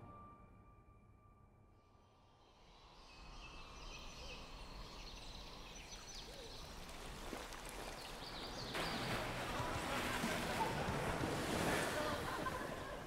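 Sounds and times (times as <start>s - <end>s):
steady outdoor hiss: 2.3s - 13.0s
rushing water: 4.4s - 13.0s.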